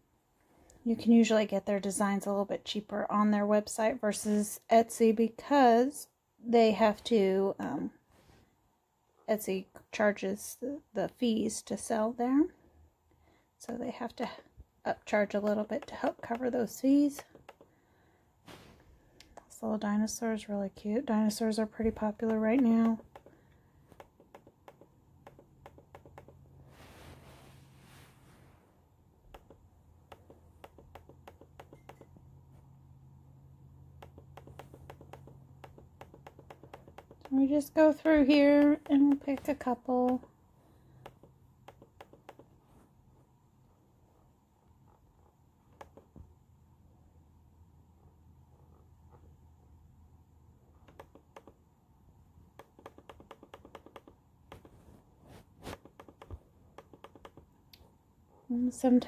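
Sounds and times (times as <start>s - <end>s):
faint low hum: 0.0s - 59.0s
mouse scroll wheel clicks: 22.2s - 23.3s, 23.9s - 26.4s, 29.3s - 32.1s, 34.0s - 37.3s, 41.0s - 42.6s, 50.8s - 51.6s, 52.6s - 54.8s, 55.7s - 57.5s
finger scrape on touchpad: 53.2s - 57.4s.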